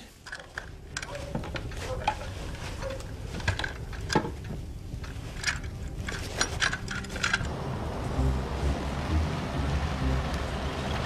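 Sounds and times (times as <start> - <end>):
low steady hum: 0.0 - 11.0
guns clicking and knocking: 0.2 - 7.5.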